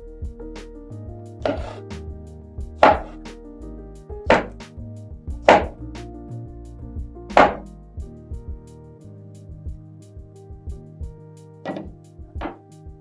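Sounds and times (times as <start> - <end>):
knife chopping on wooden board: 1.4 - 1.8, 2.8 - 3.2, 4.3 - 4.6, 5.5 - 5.8, 7.4 - 7.6, 11.7 - 12.6.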